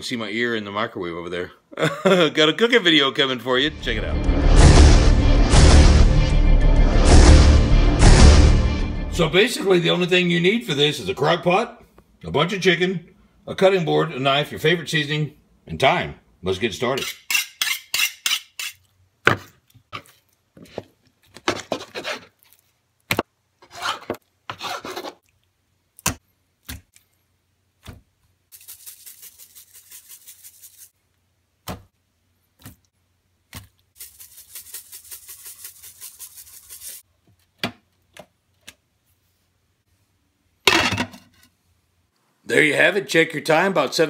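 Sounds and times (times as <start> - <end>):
knife on honing steel: 17.0 - 18.8
food preparation scrapes and knocks: 17.0 - 22.3.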